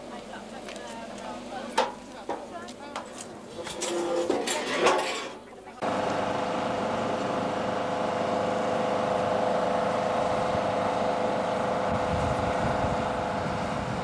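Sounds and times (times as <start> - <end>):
train diesel engine drone: 5.8 - 14.0
uneven low rumbling: 5.8 - 14.0.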